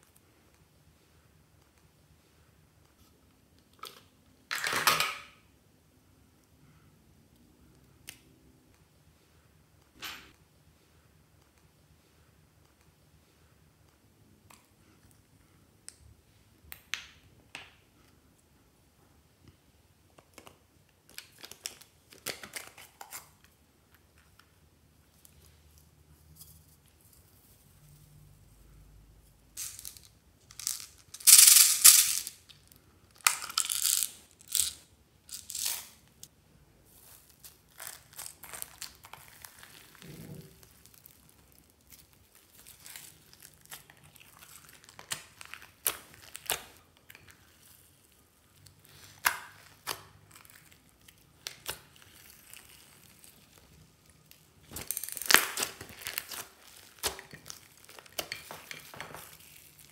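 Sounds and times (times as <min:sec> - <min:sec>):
slime crackling and rustling: 0:36.8 - 0:59.9.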